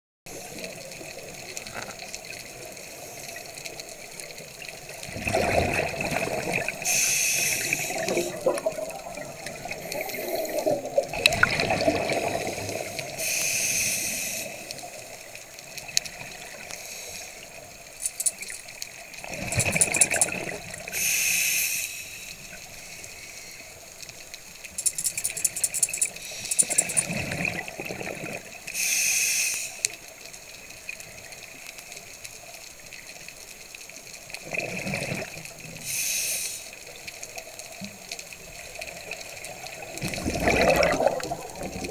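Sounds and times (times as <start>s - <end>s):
bubbling exhaled air underwater: 5.0s - 13.4s, 38.8s - 41.9s
regulator hissing: 6.8s - 8.4s.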